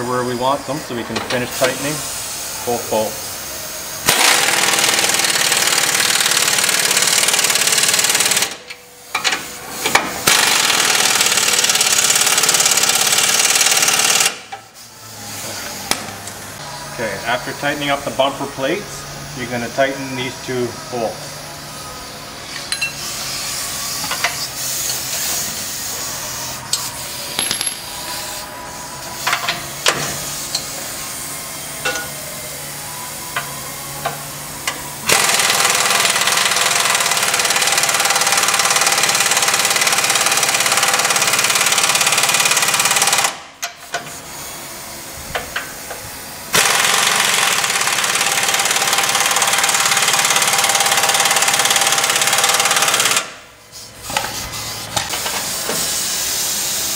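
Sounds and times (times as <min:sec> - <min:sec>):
pneumatic impact wrench: 0:04.0 - 0:16.4, 0:22.4 - 0:28.4, 0:33.4 - 0:56.9.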